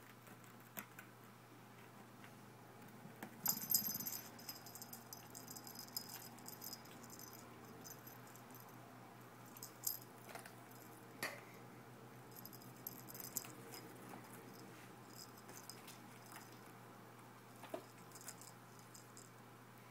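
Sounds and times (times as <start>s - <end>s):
jingling and rattling: 3.4s - 8.7s, 9.4s - 10.1s, 12.3s - 16.6s, 17.8s - 19.3s.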